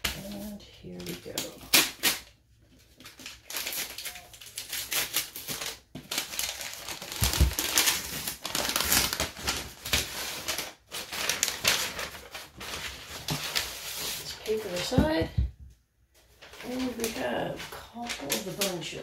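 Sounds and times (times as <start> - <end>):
paper wrapping crinkling and tearing: 0.0 - 15.2, 16.2 - 19.0.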